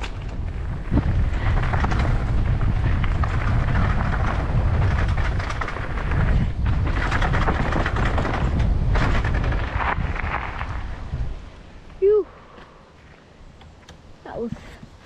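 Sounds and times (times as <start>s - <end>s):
wind rumble on microphone: 0.0s - 12.5s.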